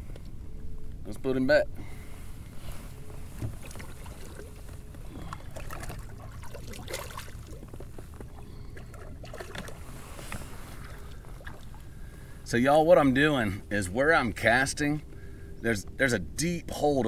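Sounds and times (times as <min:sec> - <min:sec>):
water splashing and trickling: 0:03.4 - 0:11.9.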